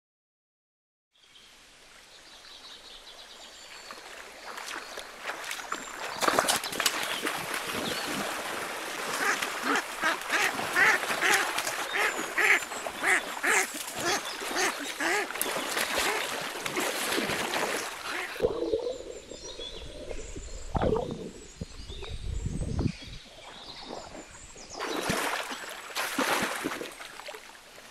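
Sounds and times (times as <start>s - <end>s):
water splashing: 3.8s - 27.9s
ducks quacking: 9.1s - 16.4s, 18.0s - 18.4s.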